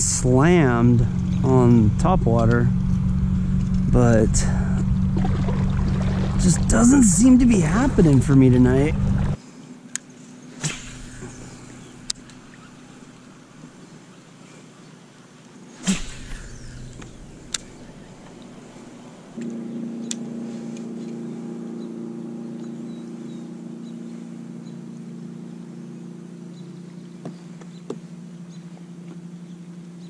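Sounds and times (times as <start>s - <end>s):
loud whoosh with falling whine: 0.0s - 9.4s, 15.9s - 24.3s
low motor hum: 0.0s - 9.4s, 10.8s - 14.2s, 15.8s - 30.0s.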